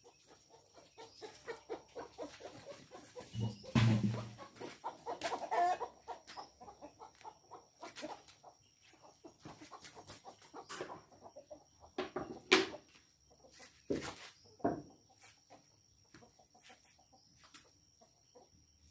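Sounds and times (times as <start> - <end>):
chickens clucking: 0.0 - 18.9
knocks on chopping board and basin: 3.4 - 4.3.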